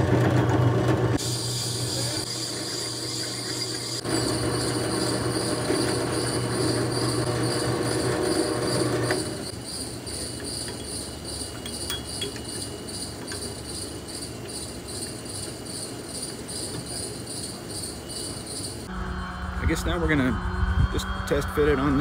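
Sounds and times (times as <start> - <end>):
drill press motor running: 0.0 - 15.6
rhythmic insect chirping: 1.5 - 22.0.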